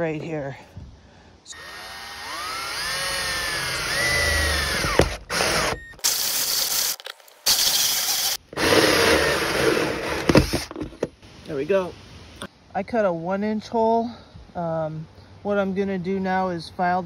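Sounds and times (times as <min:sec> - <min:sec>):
cordless drill motor whining: 0:01.5 - 0:10.7.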